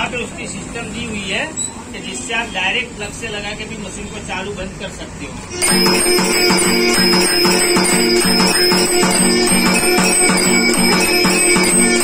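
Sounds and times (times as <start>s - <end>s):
brass bell ringing: 5.5s - 12.0s
mechanical strikers beating drum: 5.6s - 12.0s.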